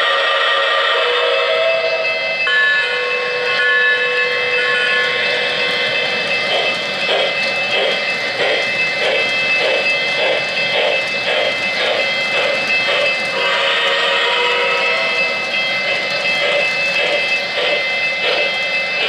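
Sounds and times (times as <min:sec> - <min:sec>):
train whistle toots: 0:00.0 - 0:05.3, 0:13.4 - 0:15.4
steady high tone: 0:00.6 - 0:19.0
steam chuffing: 0:04.4 - 0:19.0.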